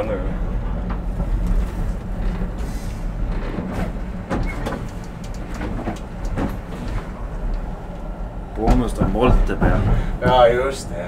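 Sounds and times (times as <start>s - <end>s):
tram rumbling over track: 0.0s - 11.0s
wheel clicks and knocks: 8.6s - 10.5s.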